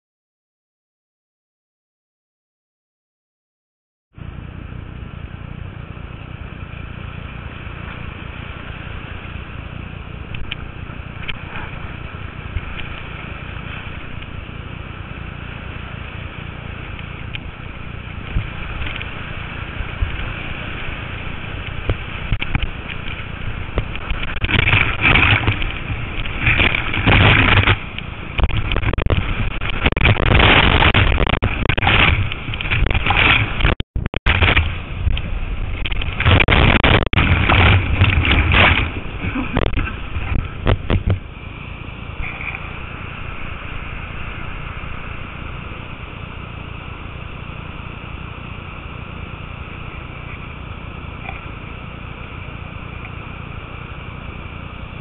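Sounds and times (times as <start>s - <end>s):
water crashing and splashing: 5.5s - 55.0s
whitewater rushing: 6.4s - 55.0s.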